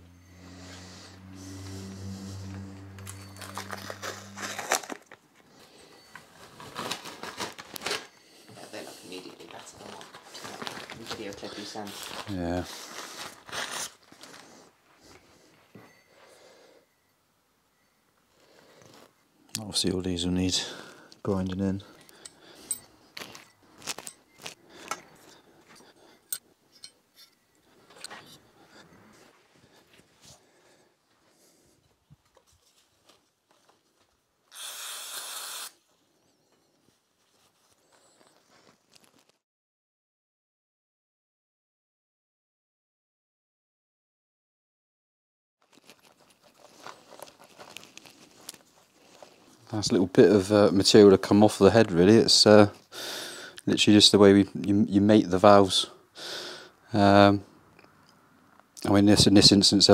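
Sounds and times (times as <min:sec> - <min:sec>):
low steady hum: 0:00.0 - 0:07.6
masking tape crinkling: 0:02.4 - 0:05.2, 0:06.2 - 0:08.2, 0:09.4 - 0:14.7, 0:23.2 - 0:25.0, 0:36.8 - 0:39.4, 0:45.6 - 0:49.6
metallic clicks and clinks: 0:22.0 - 0:25.3.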